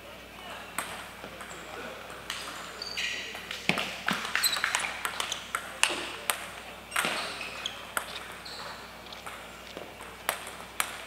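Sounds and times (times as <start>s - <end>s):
table tennis ball clicking: 10.3s - 11.0s.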